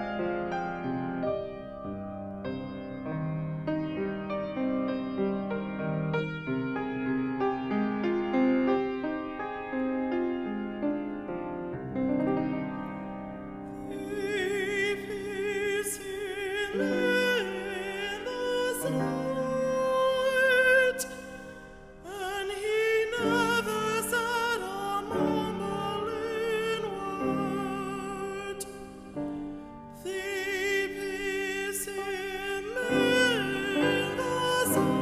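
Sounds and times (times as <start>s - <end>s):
piano accompaniment: 0.0s - 35.0s
person singing with vibrato: 13.7s - 35.0s.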